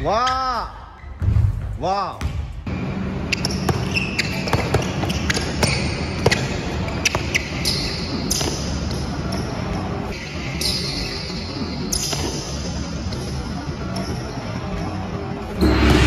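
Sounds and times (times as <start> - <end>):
basketball bouncing on court: 1.2 - 2.7, 3.3 - 9.0.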